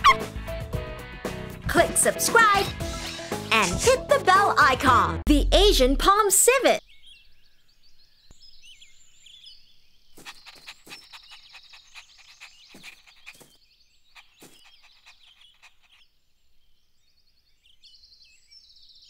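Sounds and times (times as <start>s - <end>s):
high chirping birdsong: 6.7s - 19.0s
quick sharp clicking calls: 10.2s - 16.0s.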